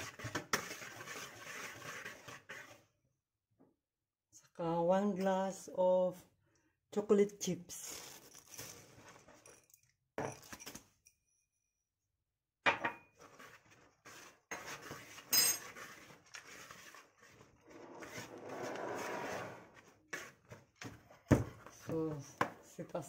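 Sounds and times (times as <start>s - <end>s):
whisk knocking and clinking bowl: 0.0s - 2.8s
whisk scraping dry mixture: 0.0s - 3.1s, 13.1s - 22.3s.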